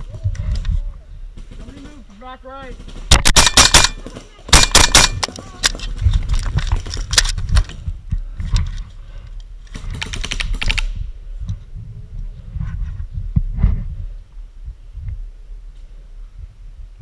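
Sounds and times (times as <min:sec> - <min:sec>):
paintball markers firing: 0:03.1 - 0:05.9.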